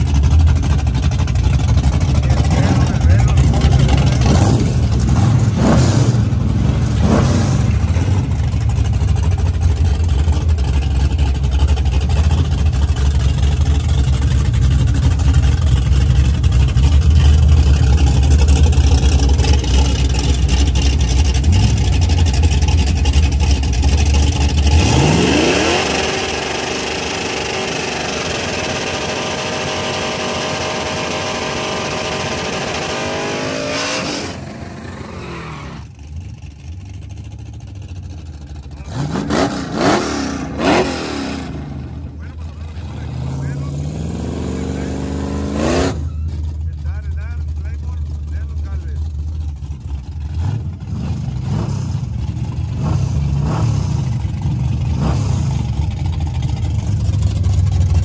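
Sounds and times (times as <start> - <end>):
drag racing engines rumbling: 0.0 - 58.0
engine revving high: 2.0 - 8.5, 24.5 - 35.9, 38.8 - 49.0, 50.3 - 56.0.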